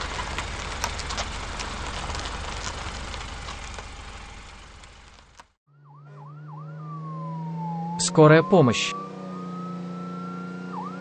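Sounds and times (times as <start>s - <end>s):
car engine idling: 0.0s - 5.6s.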